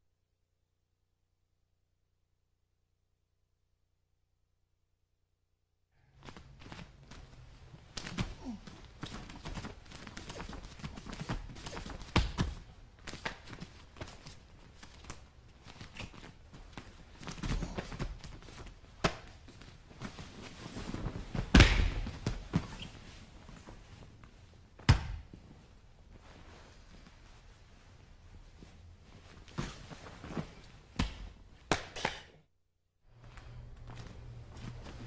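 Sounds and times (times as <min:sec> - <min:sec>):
fabric rustling: 0:06.2 - 0:31.6.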